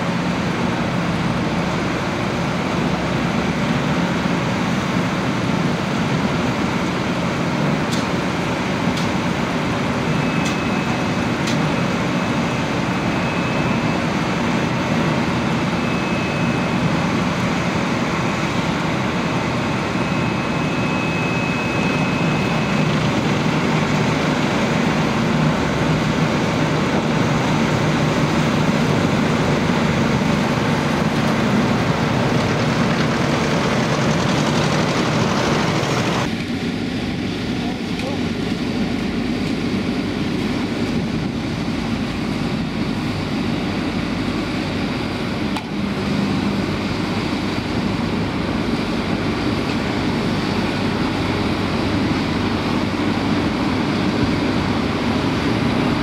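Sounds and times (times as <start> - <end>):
diesel engines running: 0.0 - 56.0
thin high whine: 19.6 - 23.5.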